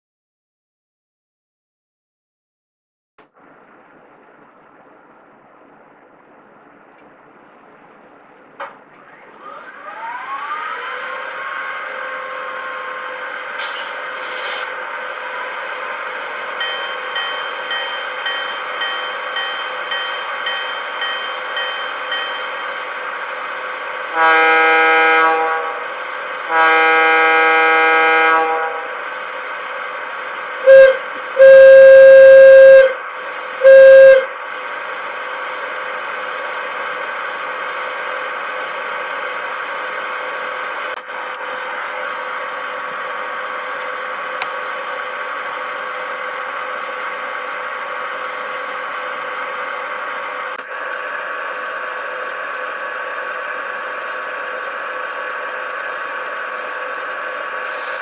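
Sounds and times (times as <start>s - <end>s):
distorted low horn: 24.1s - 29.0s, 30.6s - 33.0s, 33.6s - 34.4s
locomotive horn blasts: 24.1s - 29.0s, 30.6s - 33.0s, 33.6s - 34.3s.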